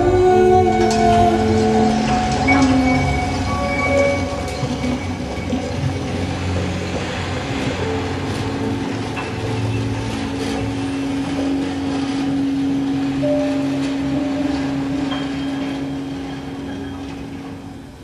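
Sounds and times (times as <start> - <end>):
electronic drone music: 0.0 - 18.0
held tone: 11.3 - 17.4.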